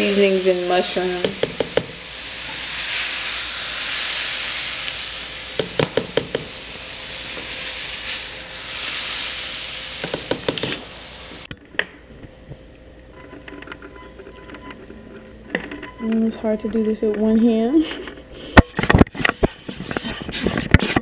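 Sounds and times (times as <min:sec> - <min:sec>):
vegetables sizzling in skillet: 0:00.0 - 0:11.5.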